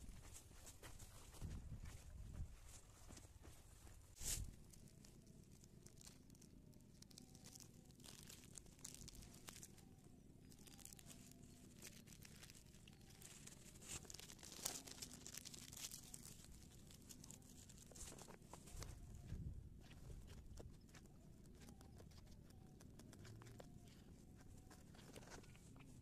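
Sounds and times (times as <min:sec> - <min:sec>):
plastic bag crinkling: 0:04.5 - 0:18.8.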